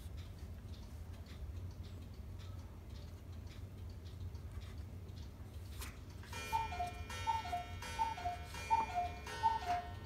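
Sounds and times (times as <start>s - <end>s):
cuckoo clock calling: 6.0s - 10.0s.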